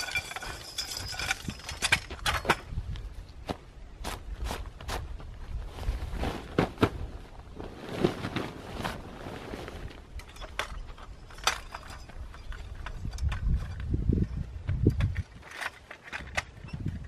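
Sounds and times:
metal tent poles clanking: 0.0 - 2.8, 7.8 - 17.0
tent fabric rustling: 4.0 - 10.2.

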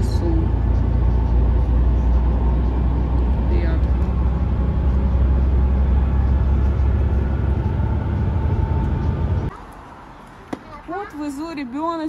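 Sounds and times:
vehicle cabin road rumble: 0.0 - 9.6.

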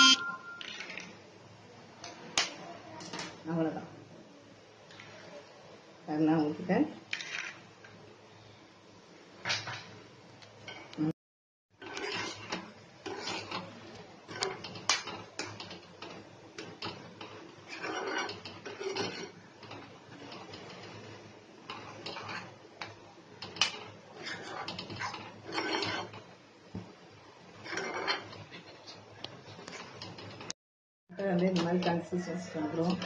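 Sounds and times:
metal spatula scraping a pan: 11.8 - 14.6, 17.5 - 22.6, 24.1 - 26.2, 27.5 - 29.1.

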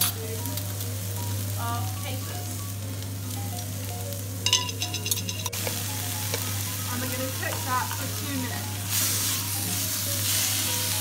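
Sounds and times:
vegetables sizzling in oil: 0.0 - 11.0
metal spoon clinking: 4.5 - 5.6.

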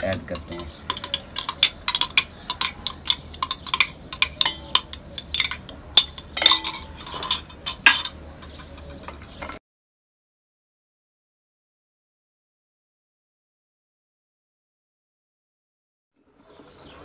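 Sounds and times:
spoon scraping glass bowl: 0.1 - 9.1.

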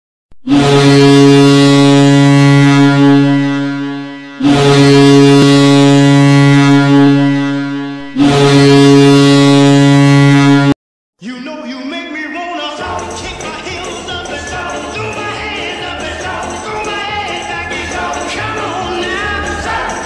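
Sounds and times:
deep air horn blasts: 0.4 - 10.8.

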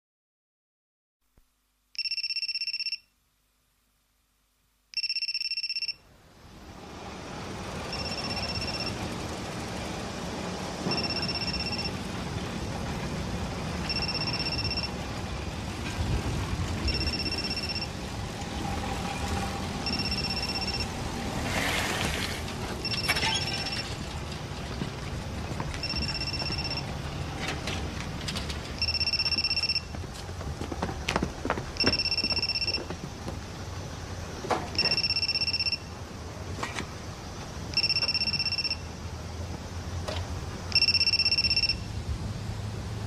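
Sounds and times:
phone ringtone beeping: 2.0 - 3.1, 5.0 - 6.0, 7.9 - 9.0, 10.8 - 12.0, 13.8 - 15.0, 16.9 - 18.0, 19.8 - 20.9, 22.8 - 23.9, 25.8 - 26.9, 28.8 - 29.9, 31.8 - 32.9, 34.8 - 35.9, 37.8 - 38.9, 40.7 - 41.9.

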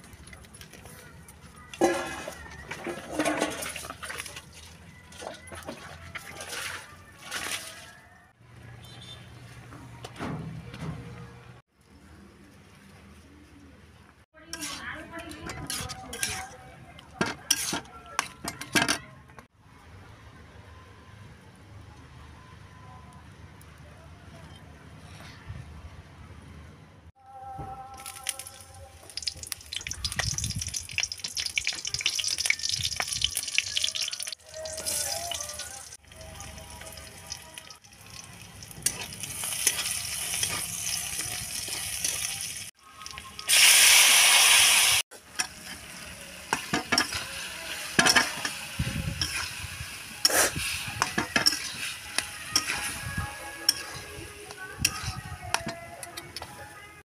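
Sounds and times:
metal spatula scraping: 1.7 - 4.5, 14.4 - 19.1, 38.8 - 42.7, 45.2 - 56.6
vegetables sizzling in hot oil: 29.0 - 35.9, 36.7 - 54.1
loud burst of hissing: 43.5 - 45.0.

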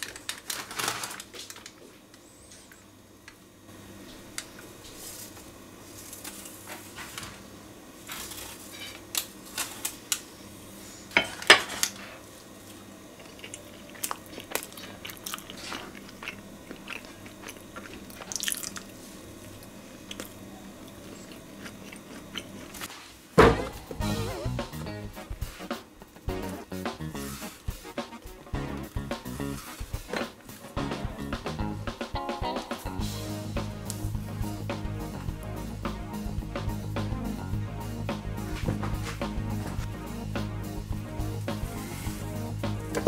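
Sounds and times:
pie crust cracking and crunching: 0.0 - 2.0, 8.0 - 10.2, 13.2 - 22.9
thump on plastic cutting board: 23.4 - 23.8.

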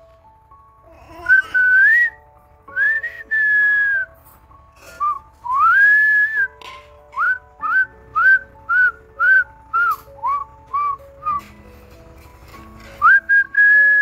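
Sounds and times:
soft low accompaniment: 0.0 - 14.0
person whistling a tune: 1.2 - 4.2, 5.0 - 11.5, 13.0 - 14.0.

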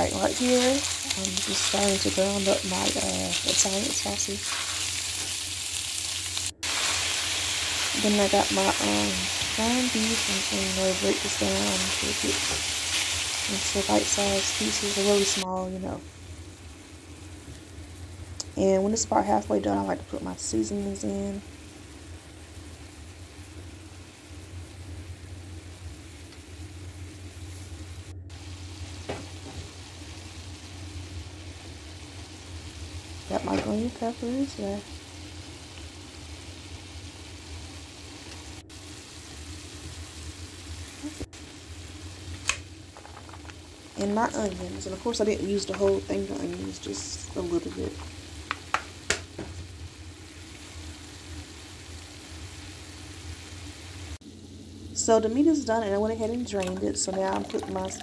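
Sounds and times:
meat sizzling in a skillet: 0.0 - 18.3, 21.4 - 58.0.

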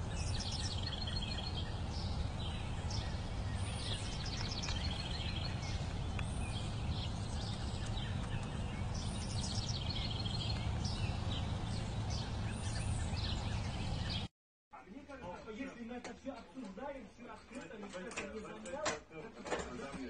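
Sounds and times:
birds chirping and trilling: 0.0 - 14.3
low outdoor rumble: 0.0 - 14.3.

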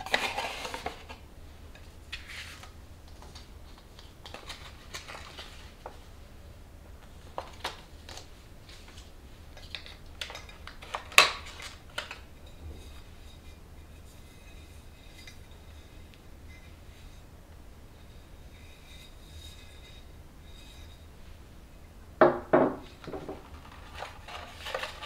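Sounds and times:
packaging rustling and knocking: 22.2 - 25.0.

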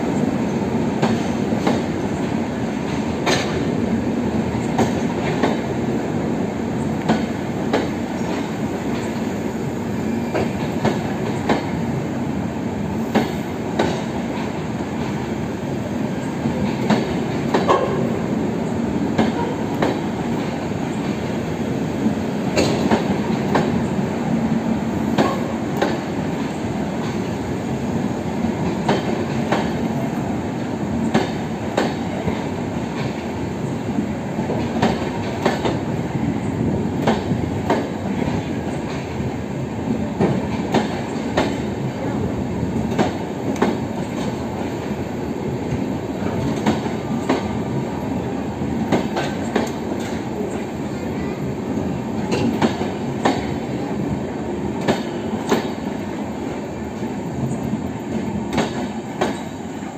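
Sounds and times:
train wheels rumbling on rail: 0.0 - 59.9
wheels clicking over rail joints: 16.4 - 18.2, 52.2 - 53.8.

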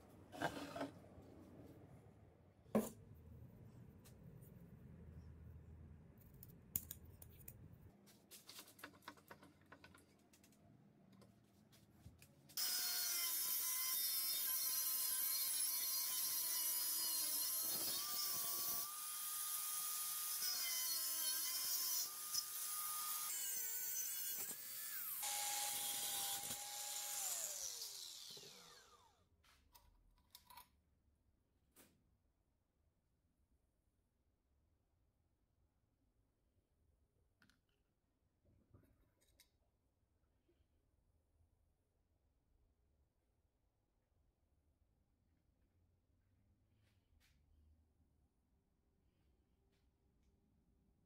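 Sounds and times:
angle grinder cutting metal: 12.6 - 29.1
grinder spinning down whine: 25.2 - 29.1.

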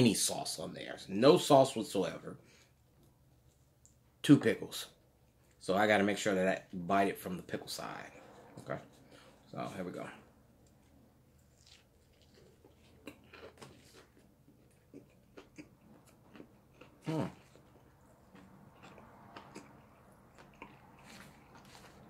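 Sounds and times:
person chewing crunchy food: 10.6 - 22.0.

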